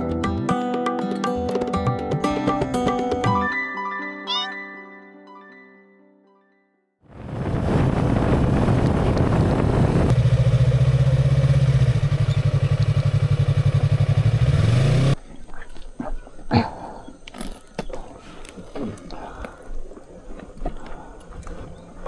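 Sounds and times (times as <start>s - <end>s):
motorcycle engine running: 7.3s - 15.2s.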